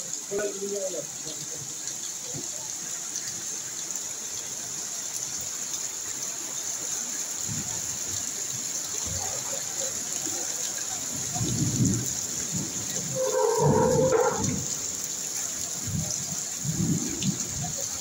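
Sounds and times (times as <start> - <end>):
heavy rain pouring: 0.0 - 18.0
running water: 0.0 - 18.0
low rumbles: 12.8 - 15.0.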